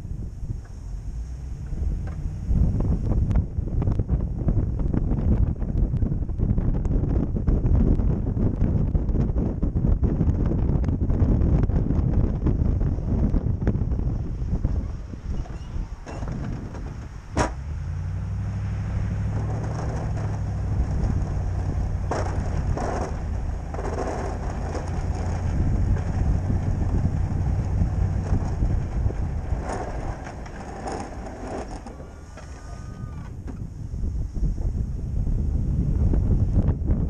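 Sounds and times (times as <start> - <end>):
pickup engine running under load: 0.0 - 8.7, 9.6 - 37.0
plow blade scraping snow: 14.2 - 33.6.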